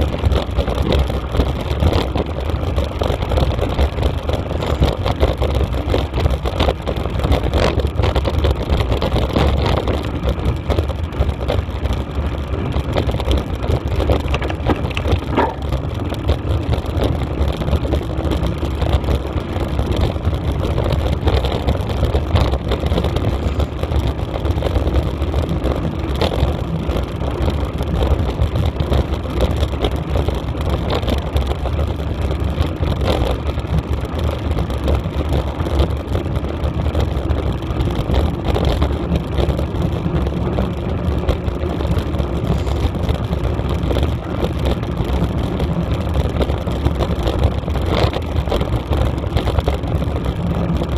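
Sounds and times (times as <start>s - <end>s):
camera rattling and knocking: 0.0s - 50.9s
wind buffeting microphone: 0.0s - 50.9s.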